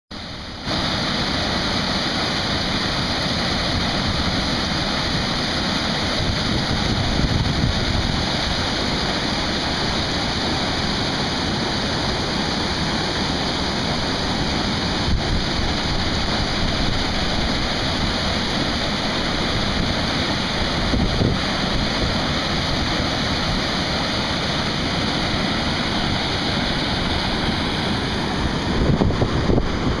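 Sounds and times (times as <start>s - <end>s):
water rushing over spillway: 0.1s - 30.0s
wind buffeting microphone: 6.2s - 8.5s, 27.6s - 30.0s.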